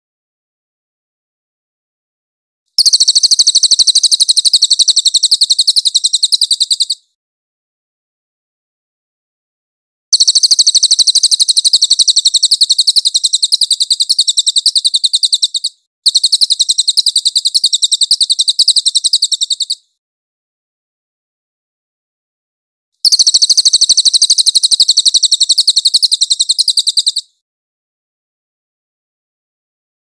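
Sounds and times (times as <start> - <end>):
bird rattling trills: 2.8 - 7.0, 10.2 - 19.8, 23.0 - 27.3.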